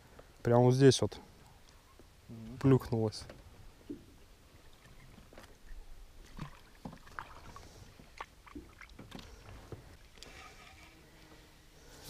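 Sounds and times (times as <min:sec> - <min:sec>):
water lapping against boat hull: 0:03.2 - 0:10.4.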